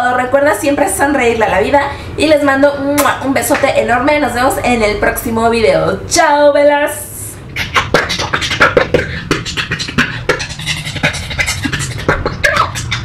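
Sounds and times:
person beatboxing: 0:07.4 - 0:13.0.

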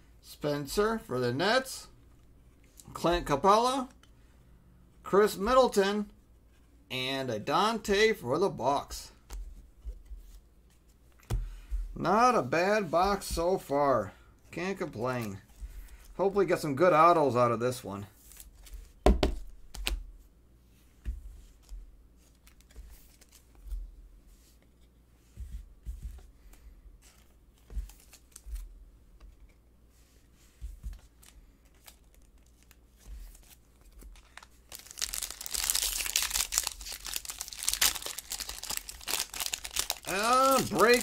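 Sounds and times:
cards knocking on tabletop: 0:19.0 - 0:19.4
foil wrapper crinkling: 0:31.8 - 0:41.0.

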